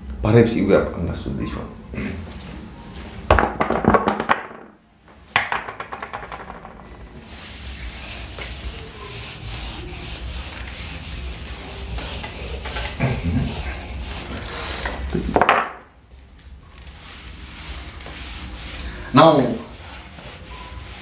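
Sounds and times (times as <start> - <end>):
duster rubbing whiteboard: 5.8 - 15.5, 16.1 - 21.0
marker writing on whiteboard: 6.0 - 15.0.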